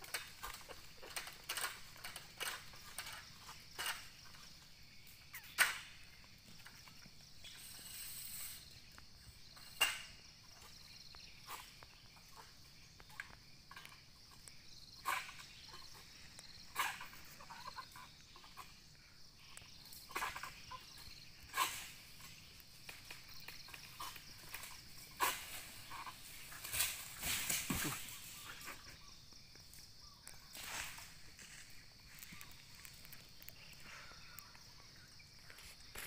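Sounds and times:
high insect buzz: 0:00.0 - 0:36.0
sickle hacking palm fronds: 0:21.5 - 0:28.9.

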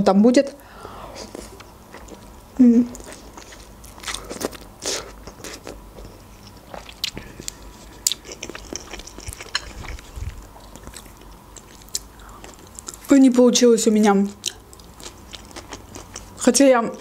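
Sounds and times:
noodles being chewed: 0:02.9 - 0:13.2, 0:14.0 - 0:16.5.

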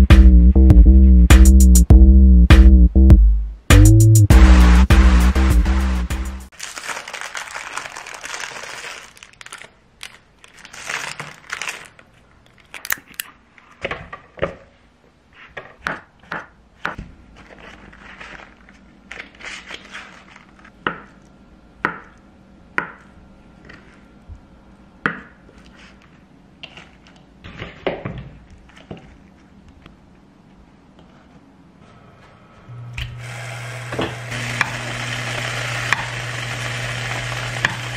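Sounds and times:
paper rustling: 0:06.5 - 0:13.2, 0:17.2 - 0:20.8
plastic wrapper crinkling: 0:06.5 - 0:13.3, 0:17.3 - 0:20.8.

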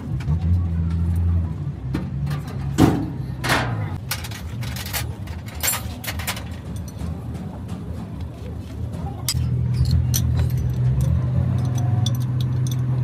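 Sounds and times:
engine humming: 0:00.0 - 0:13.0
metal hand tools clanking: 0:09.2 - 0:13.0.

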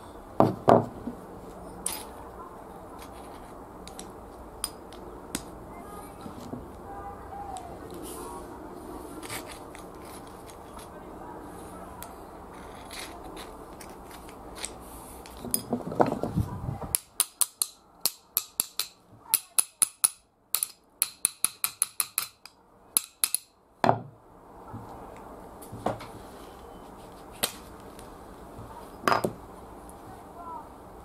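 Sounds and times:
scraping rub: 0:09.0 - 0:10.9, 0:12.5 - 0:15.4.

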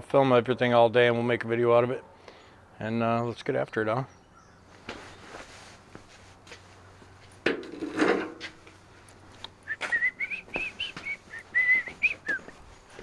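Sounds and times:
footsteps: 0:04.7 - 0:13.0
man whistling a tune: 0:09.7 - 0:12.6.

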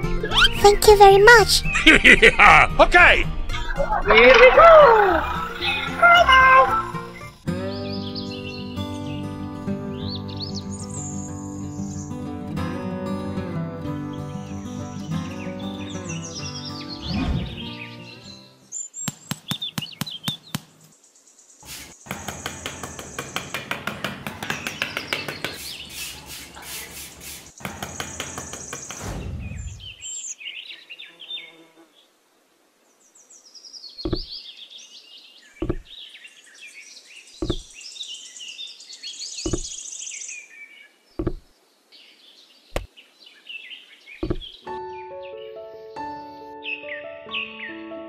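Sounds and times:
bird chirps: 0:00.2 - 0:00.6, 0:15.2 - 0:23.6, 0:33.2 - 0:47.8
sharp knocks: 0:22.1 - 0:25.6, 0:34.0 - 0:34.3, 0:35.6 - 0:35.9, 0:37.4 - 0:37.7, 0:39.4 - 0:39.7, 0:41.2 - 0:41.5, 0:44.2 - 0:44.5.

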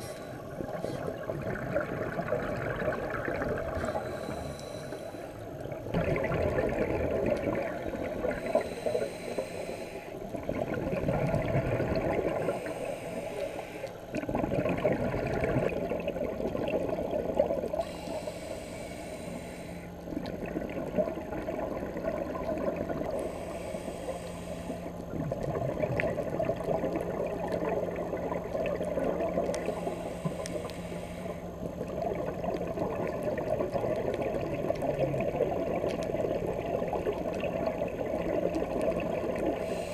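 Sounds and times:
regulator inhale hiss: 0:00.0 - 0:01.2, 0:03.7 - 0:05.6, 0:08.0 - 0:10.3, 0:12.4 - 0:14.1, 0:17.7 - 0:20.1, 0:23.1 - 0:25.1, 0:29.5 - 0:31.7, 0:39.4 - 0:39.9
exhaled bubbles rushing: 0:00.0 - 0:04.2, 0:05.6 - 0:08.6, 0:10.3 - 0:12.7, 0:14.1 - 0:17.8, 0:20.1 - 0:23.2, 0:25.1 - 0:29.7, 0:31.6 - 0:39.6
faint low hum: 0:00.0 - 0:39.9.

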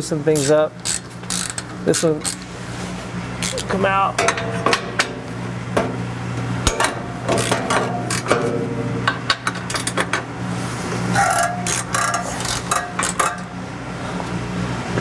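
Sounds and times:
steady low hum: 0:00.0 - 0:15.0
wrench clicking on metal bolts: 0:00.4 - 0:02.4, 0:11.2 - 0:13.5.

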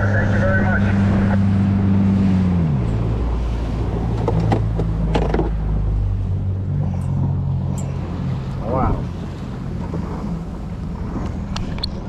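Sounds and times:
small boat engine running: 0:00.0 - 0:12.0
knocks and clatters in boat: 0:02.6 - 0:12.0.

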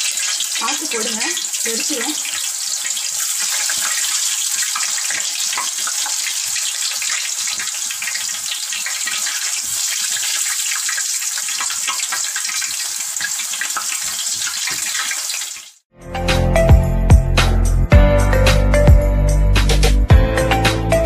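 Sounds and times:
potatoes deep-frying in oil: 0:00.0 - 0:15.8
background music: 0:16.0 - 0:21.0.

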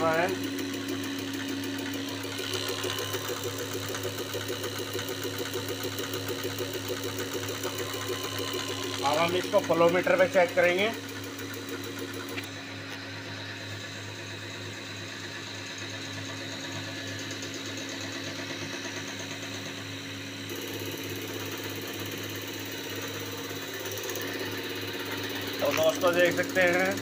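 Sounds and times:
injector fast ticking: 0:00.0 - 0:12.5, 0:20.5 - 0:27.0
pump drive hum: 0:00.0 - 0:27.0.

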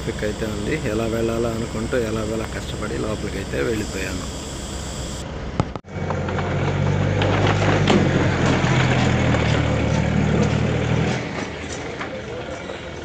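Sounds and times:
truck engine idling: 0:00.0 - 0:05.2.

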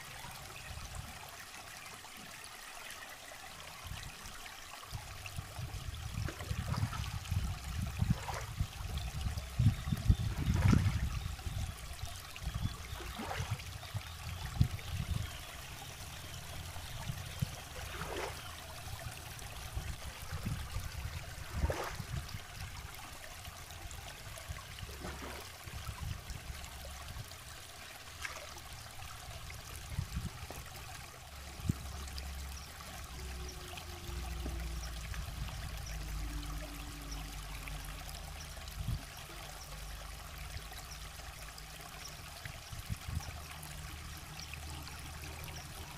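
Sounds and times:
river water trickling: 0:00.0 - 0:45.9
sharp water splash: 0:08.0 - 0:08.6, 0:10.2 - 0:11.1, 0:12.9 - 0:13.6, 0:17.7 - 0:18.5, 0:21.4 - 0:22.2, 0:24.8 - 0:25.7.

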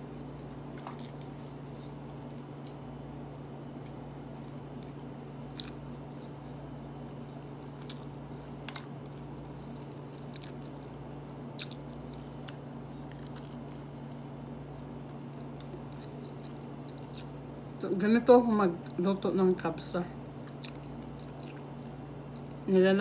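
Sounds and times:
person chewing with mouth clicks: 0:04.8 - 0:06.6, 0:09.5 - 0:13.9, 0:15.0 - 0:17.4, 0:20.4 - 0:22.6.

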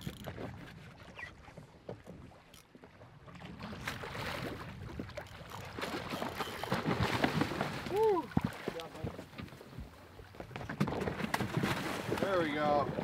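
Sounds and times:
water sloshing: 0:00.0 - 0:13.0
fish thrashing and splashing: 0:03.6 - 0:09.3, 0:10.4 - 0:13.0.

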